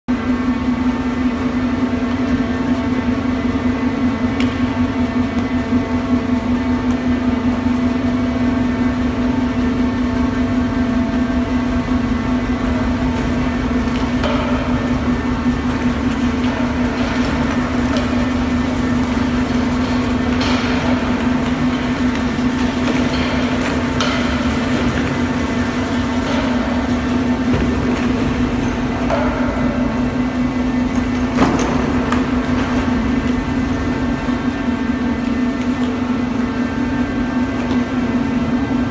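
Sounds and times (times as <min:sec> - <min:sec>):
loud steady machine hum: 0:00.0 - 0:38.9.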